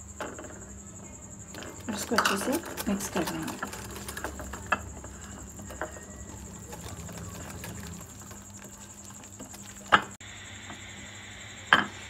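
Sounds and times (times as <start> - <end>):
whisk scraping a glass bowl: 1.5 - 10.2.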